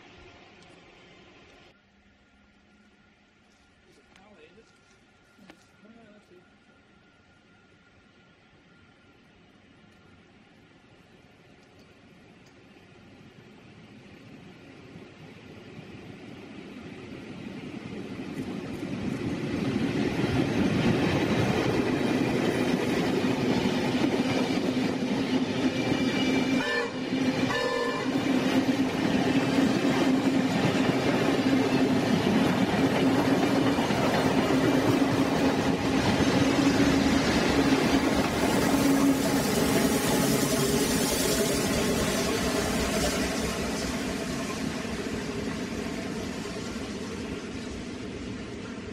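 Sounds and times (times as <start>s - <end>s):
locomotive engine drone: 0.0s - 48.9s
train horn: 26.5s - 28.2s.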